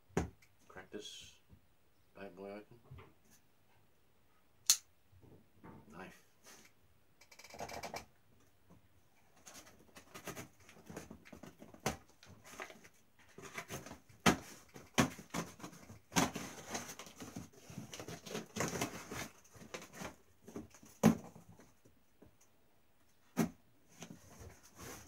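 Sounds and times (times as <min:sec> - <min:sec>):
cardboard scraping and rustling: 0:09.4 - 0:21.7, 0:23.2 - 0:25.0.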